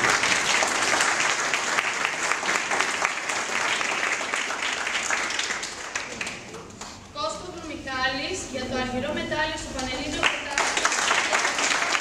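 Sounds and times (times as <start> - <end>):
audience applauding: 0.0 - 6.8, 10.2 - 12.0.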